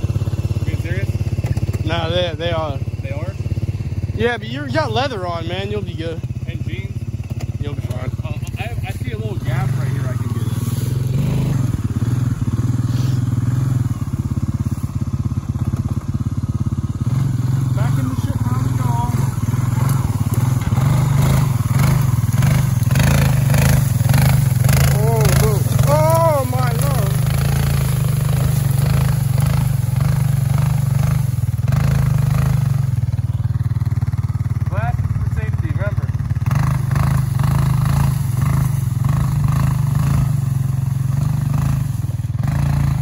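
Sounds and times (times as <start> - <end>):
atv engine chugging: 0.0 - 43.0
scraping of dry brush: 8.4 - 11.6, 12.8 - 13.3.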